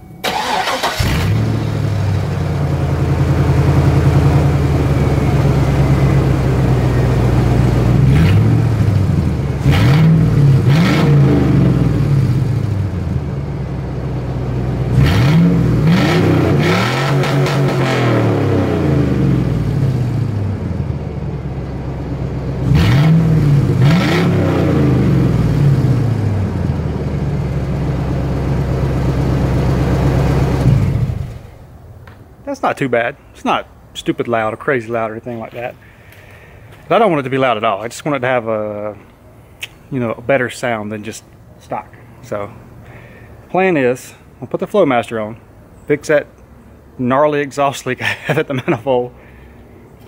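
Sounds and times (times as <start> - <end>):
truck engine idling and revving: 0.0 - 32.2.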